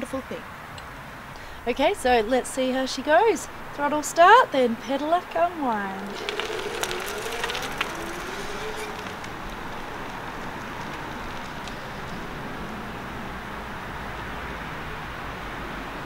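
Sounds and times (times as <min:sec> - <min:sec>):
electric motor whine: 0:05.0 - 0:12.3
electric bike hiss: 0:05.8 - 0:11.1.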